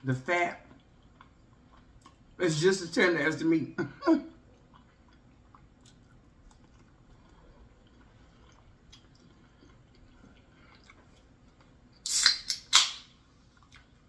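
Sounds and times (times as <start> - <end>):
close-up chewing: 0.6 - 2.4, 4.4 - 12.0, 13.4 - 14.0
wet mouth clicks: 12.0 - 13.0.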